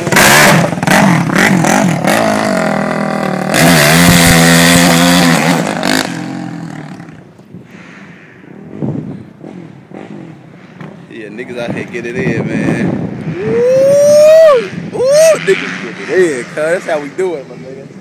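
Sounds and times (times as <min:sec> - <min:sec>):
motocross bike revving: 0:00.0 - 0:07.3, 0:08.8 - 0:11.0, 0:15.4 - 0:17.6.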